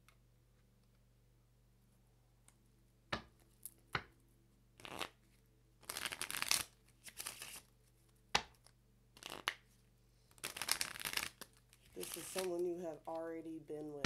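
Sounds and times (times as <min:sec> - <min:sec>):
cards knocking: 0:03.1 - 0:04.1, 0:08.3 - 0:09.6
cards riffling: 0:05.8 - 0:09.7, 0:10.3 - 0:13.2.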